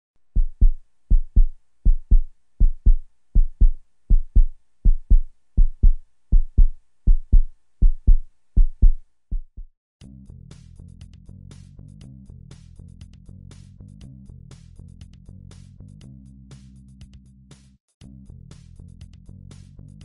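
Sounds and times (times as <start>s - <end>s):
heartbeat thumps: 0.4s - 9.7s
music: 10.0s - 20.0s.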